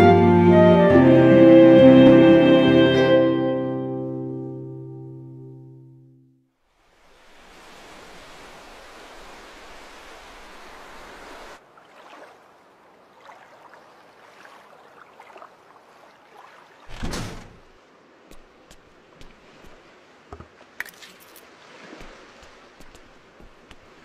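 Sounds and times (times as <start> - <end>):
loud thud: 16.9 - 17.7.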